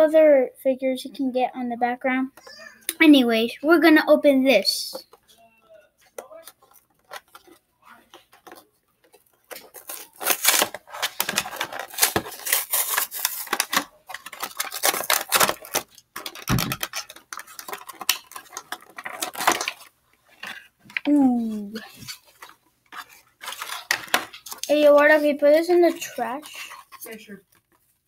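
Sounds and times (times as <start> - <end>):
plastic packaging crinkling: 6.1 - 28.0.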